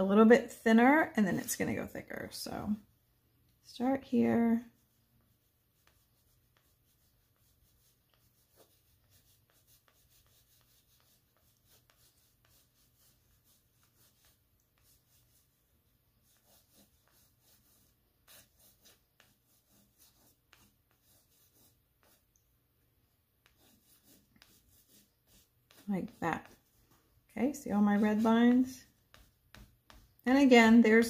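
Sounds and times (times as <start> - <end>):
pastel scratching on paper: 4.1 - 22.3, 23.4 - 26.8, 27.4 - 30.4.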